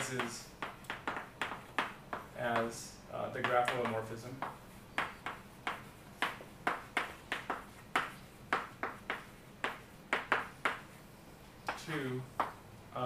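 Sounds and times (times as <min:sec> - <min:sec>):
chalk tapping and scratching: 0:00.0 - 0:12.6.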